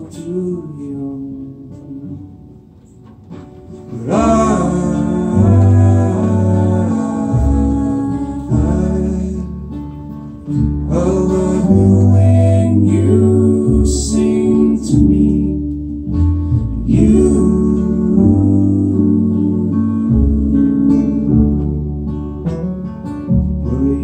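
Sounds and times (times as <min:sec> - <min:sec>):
strummed acoustic guitar: 0:00.0 - 0:24.0
upright bass: 0:00.0 - 0:24.0
banjo: 0:03.0 - 0:24.0
people singing: 0:03.9 - 0:09.9, 0:10.6 - 0:16.2, 0:16.8 - 0:22.0.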